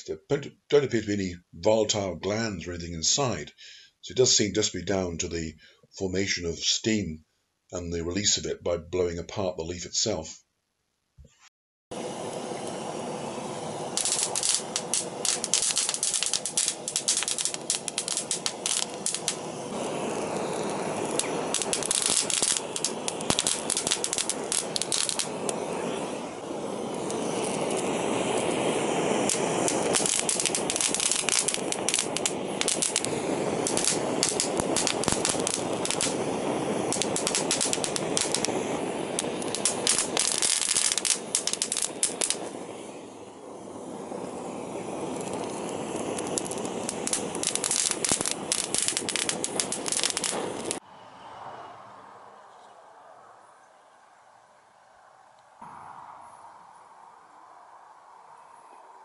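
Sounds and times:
gas torch flame rushing: 11.9 - 50.8
leaves crackling and popping: 13.9 - 50.8.

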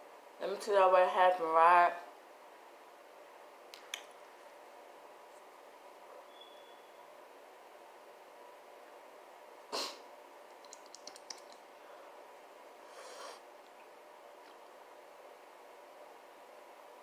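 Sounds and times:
sharp snort through nose: 9.7 - 10.0, 12.9 - 13.4
soft breathy puff: 9.7 - 10.1, 12.9 - 13.5
faint clicks: 10.6 - 11.6.

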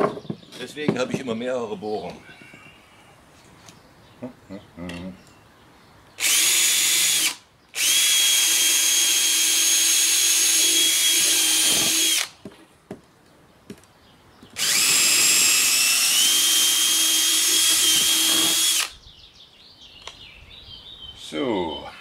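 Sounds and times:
cordless drill driving screws: 6.2 - 12.4, 14.6 - 19.0
drill clicks: 6.2 - 12.4, 14.6 - 19.0.

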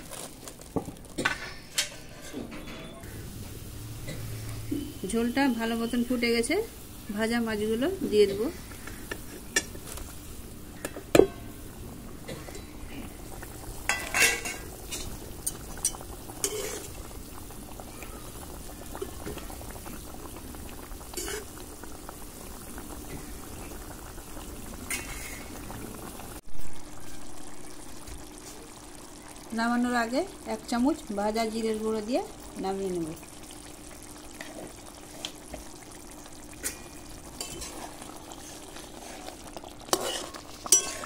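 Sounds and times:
gravy boiling in a pan: 0.0 - 2.4, 3.0 - 41.0
metal utensils clinking on pan: 1.2 - 3.0, 13.9 - 16.8, 39.9 - 41.0.

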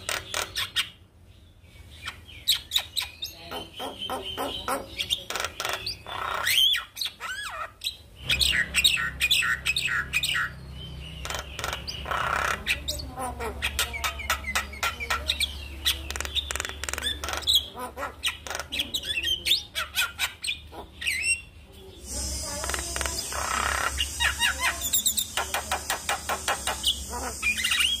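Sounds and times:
steady hiss: 22.0 - 28.0.

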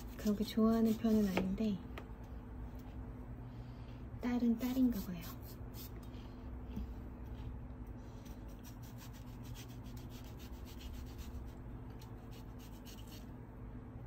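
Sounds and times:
knife slicing melon rind: 8.3 - 13.3.

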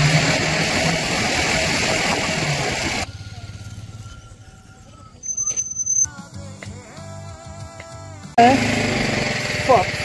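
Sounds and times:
wind and road noise: 0.0 - 3.1
motorcycle engine running: 0.0 - 5.2, 8.3 - 10.0
pulsing engine idle: 0.0 - 5.2, 8.4 - 10.0.

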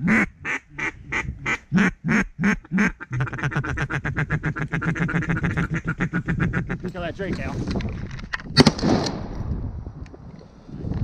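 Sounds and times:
duck call quacks: 0.0 - 6.8.

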